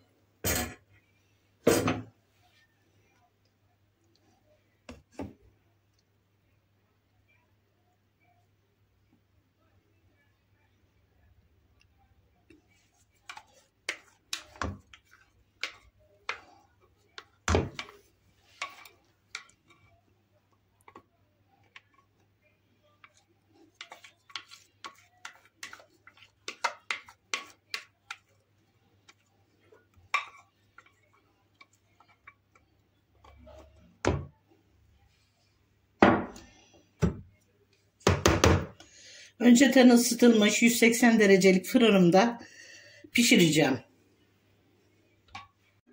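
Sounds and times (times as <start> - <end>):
spatula tapping metal cake pan: 23.8 - 28.2.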